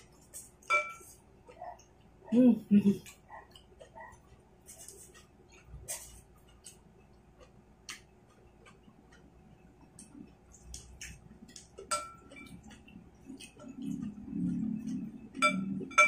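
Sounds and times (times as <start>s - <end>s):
faint chewing: 0.0s - 16.0s
utensils tapping ceramic bowl: 11.8s - 12.6s.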